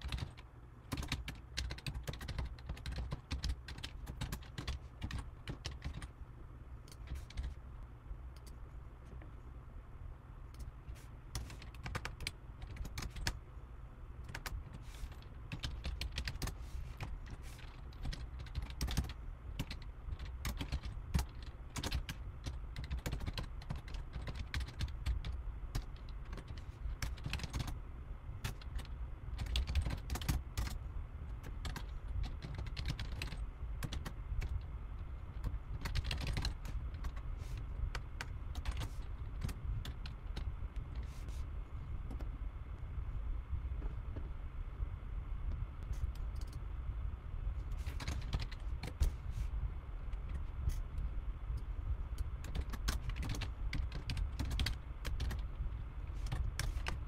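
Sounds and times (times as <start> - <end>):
computer keyboard typing: 0.0 - 6.2, 6.8 - 7.6, 11.3 - 13.4, 14.2 - 27.8, 28.4 - 30.8, 31.4 - 34.7, 35.3 - 37.3, 37.9 - 40.5, 47.9 - 49.1, 52.2 - 55.5, 56.2 - 57.0
low steady hum: 0.0 - 57.0.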